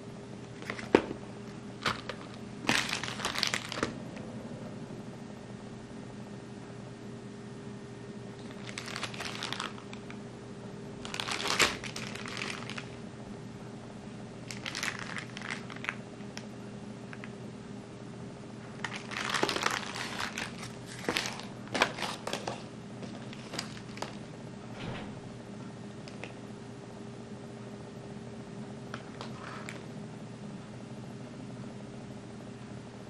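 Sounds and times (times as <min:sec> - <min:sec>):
steady low hum: 0:00.0 - 0:33.0
plastic bag crinkling: 0:00.6 - 0:01.1, 0:01.8 - 0:04.0, 0:08.4 - 0:10.2, 0:11.0 - 0:13.0, 0:14.4 - 0:16.0, 0:18.8 - 0:24.3.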